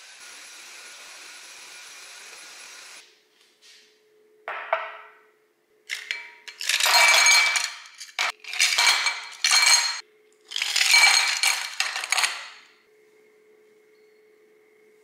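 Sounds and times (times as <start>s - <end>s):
ice cubes clinking in a glass: 5.9s - 12.6s.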